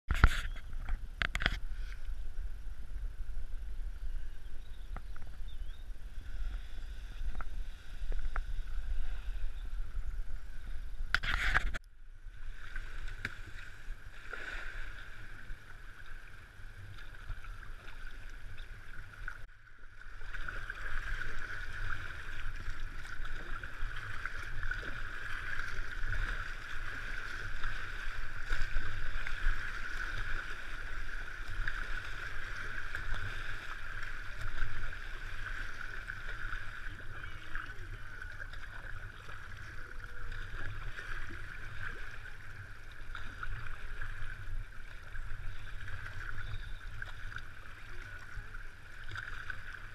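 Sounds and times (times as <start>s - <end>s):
low rumble: 0.8s - 11.2s
river water rushing and splashing: 12.4s - 49.9s.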